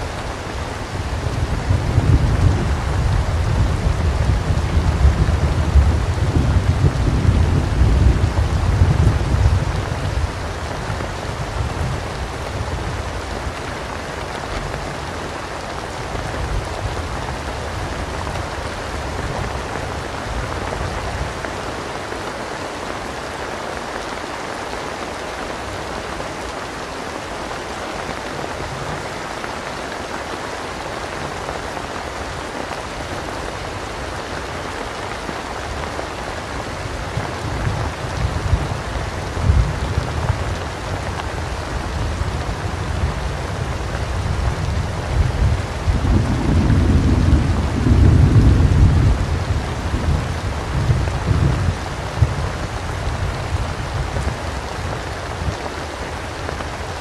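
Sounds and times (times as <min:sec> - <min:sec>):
heavy rain falling: 0:00.0 - 0:57.0
low rolling thunder: 0:00.8 - 0:13.4, 0:36.8 - 0:55.6.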